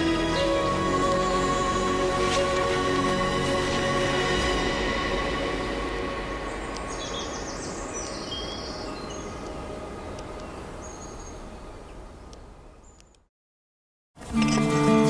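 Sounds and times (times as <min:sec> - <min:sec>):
even rushing noise: 0:01.4 - 0:10.2
high bird chirps: 0:06.3 - 0:11.4.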